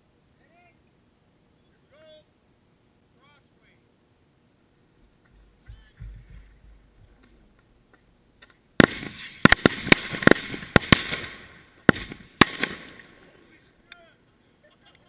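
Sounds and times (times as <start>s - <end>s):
fireworks crackling: 8.4s - 13.7s
firework bang: 8.8s - 13.2s.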